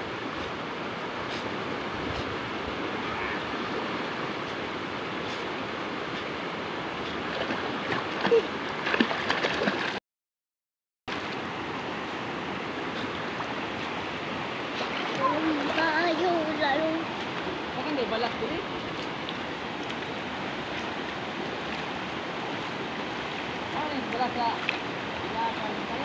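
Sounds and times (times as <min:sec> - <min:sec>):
river water rushing over rocks: 0:00.0 - 0:10.0, 0:11.1 - 0:26.0
swimmers splashing: 0:14.7 - 0:17.4.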